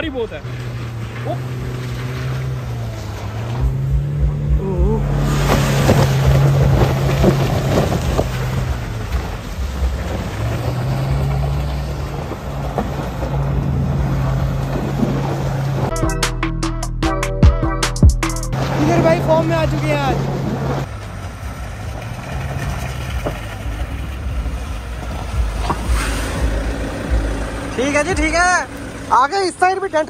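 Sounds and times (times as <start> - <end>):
tyres churning through gravel: 0.0 - 15.9, 18.5 - 30.0
engine revving hard: 0.2 - 15.9, 25.4 - 29.3.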